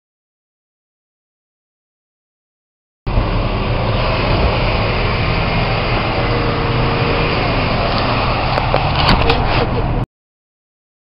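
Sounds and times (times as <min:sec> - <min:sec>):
dense rushing noise: 0:03.1 - 0:10.0
off-road vehicle engine running: 0:03.1 - 0:10.0.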